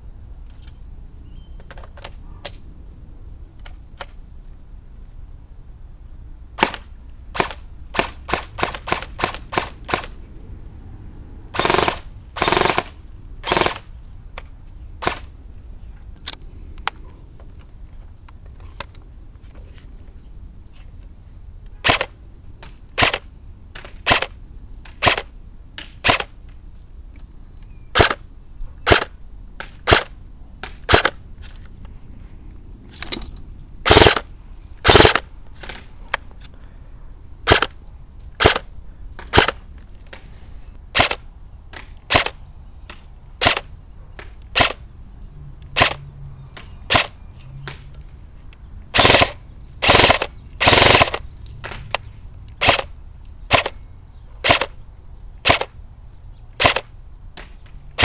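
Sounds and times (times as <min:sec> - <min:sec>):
airsoft gun firing single shots: 0:06.6 - 0:10.2, 0:11.6 - 0:13.9, 0:15.0 - 0:15.3, 0:21.8 - 0:22.1, 0:23.0 - 0:26.4, 0:28.0 - 0:28.2, 0:28.9 - 0:31.2, 0:33.8 - 0:35.8, 0:37.4 - 0:37.8, 0:38.4 - 0:39.6, 0:40.9 - 0:44.8, 0:45.8 - 0:46.0, 0:46.9 - 0:47.2, 0:49.0 - 0:52.9, 0:53.5 - 0:53.8, 0:54.4 - 0:54.7, 0:55.4 - 0:55.8, 0:56.6 - 0:58.0.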